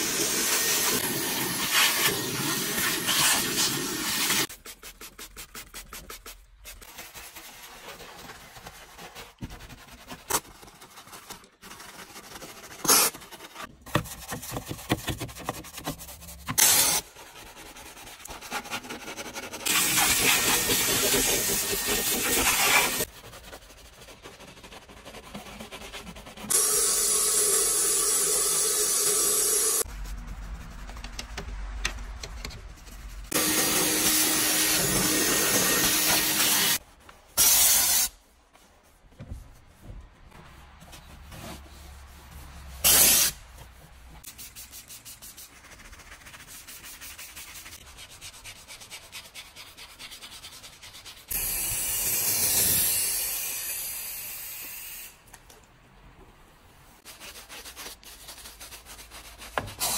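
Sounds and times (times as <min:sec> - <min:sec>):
brush scrubbing metal floor: 0:18.4 - 0:26.7, 0:33.1 - 0:36.8
steam cleaner hissing: 0:19.7 - 0:23.1, 0:33.4 - 0:36.8.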